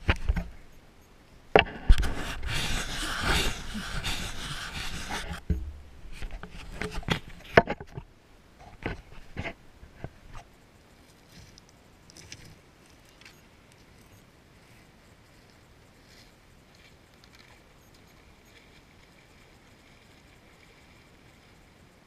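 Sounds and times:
camera rubbing noise: 0.0s - 0.6s, 1.6s - 10.5s.

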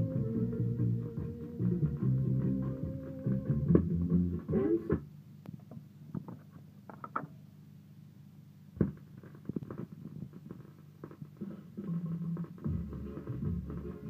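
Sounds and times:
music from a record: 0.0s - 5.1s, 8.8s - 14.0s
vinyl crackles and clicks: 0.0s - 7.4s, 8.7s - 14.0s.

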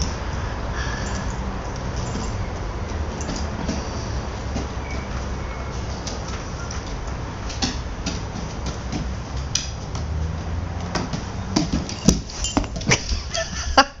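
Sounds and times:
dog claws clicking on wood floor: 6.0s - 13.1s.

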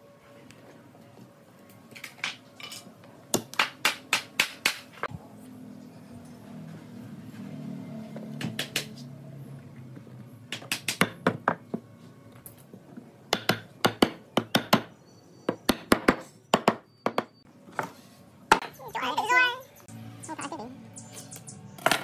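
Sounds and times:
hammer striking nails into wood: 3.3s - 4.9s, 10.5s - 11.6s, 13.3s - 14.9s, 15.5s - 17.3s.

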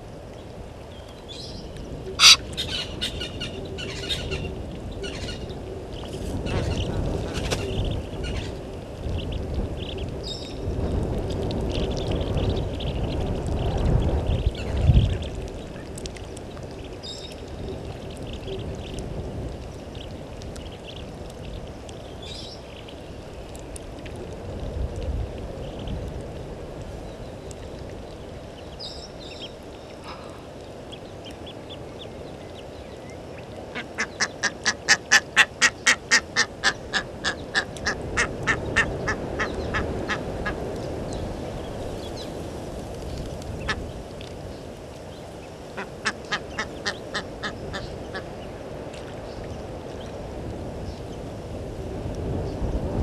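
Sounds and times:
goose honking: 2.2s - 2.4s.

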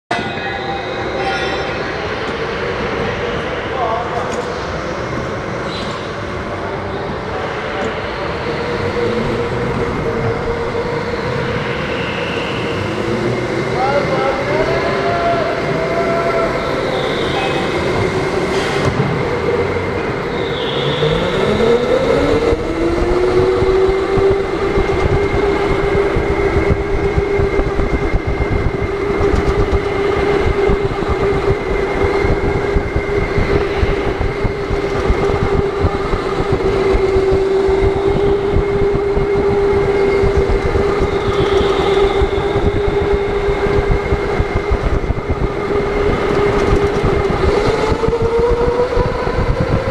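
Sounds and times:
kart rattling and rolling: 21.3s - 49.9s.

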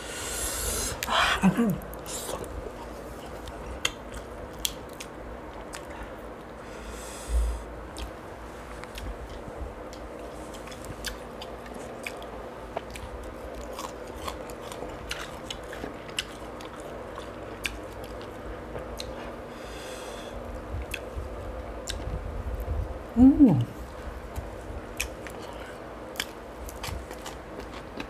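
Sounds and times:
person chewing with wet smacks: 1.8s - 6.5s, 7.9s - 19.3s, 20.8s - 21.2s, 21.8s - 22.7s, 24.3s - 28.0s.

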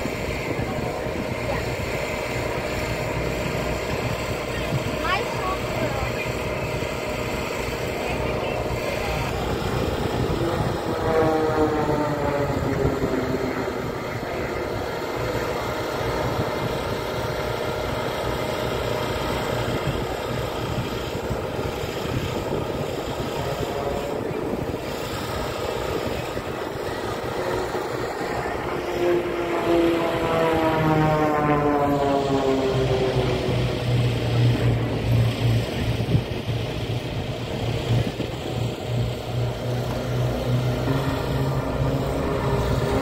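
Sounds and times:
aircraft flying past: 0.0s - 43.0s
wind noise: 8.3s - 18.0s, 19.5s - 29.4s, 30.7s - 43.0s.

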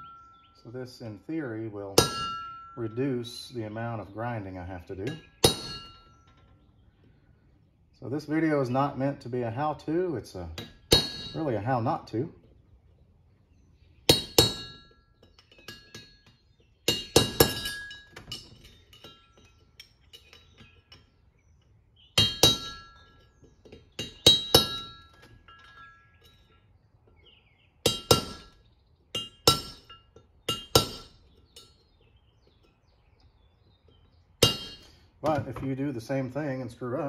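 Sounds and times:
hammer striking a steel punch: 2.0s - 2.8s, 5.1s - 6.1s, 10.6s - 11.5s, 14.1s - 16.1s, 16.9s - 18.4s, 22.2s - 23.2s, 24.0s - 25.8s, 27.8s - 28.6s, 29.2s - 31.2s, 34.4s - 35.6s.

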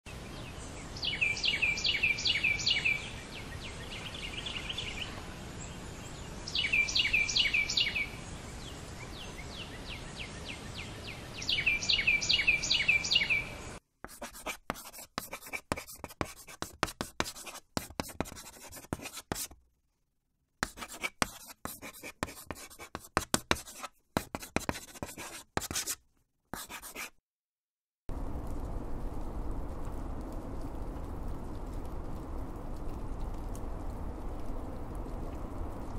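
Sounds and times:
marker scratching on a board: 14.1s - 19.6s, 20.6s - 26.0s, 26.6s - 27.2s.

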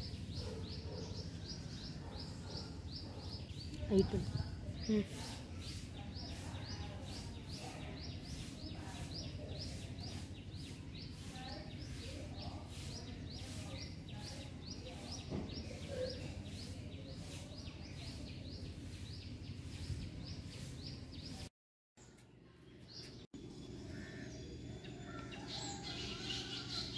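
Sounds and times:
bird chirping: 0.0s - 21.4s.

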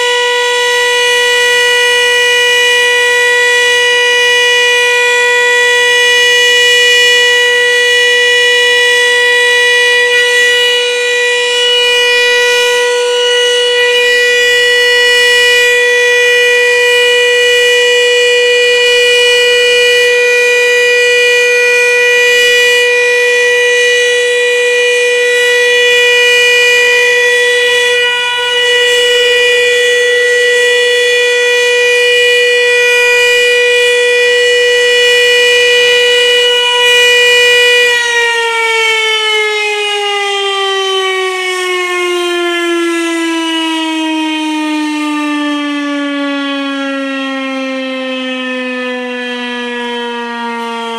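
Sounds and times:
steady siren tone: 0.0s - 50.9s.

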